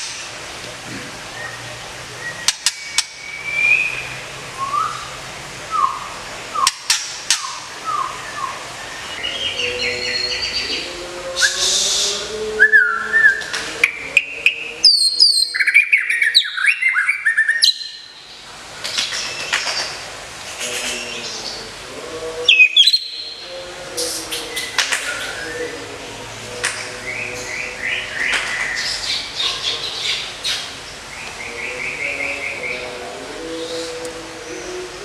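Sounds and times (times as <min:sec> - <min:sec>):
bird singing whistles and trills: 0:01.4 - 0:10.8, 0:11.4 - 0:18.1, 0:22.5 - 0:23.4.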